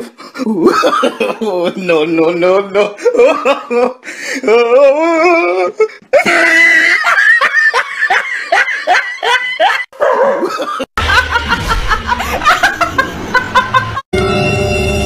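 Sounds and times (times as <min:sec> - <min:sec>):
woman laughing: 0:06.2 - 0:14.0
people laughing in short bursts: 0:10.4 - 0:14.0.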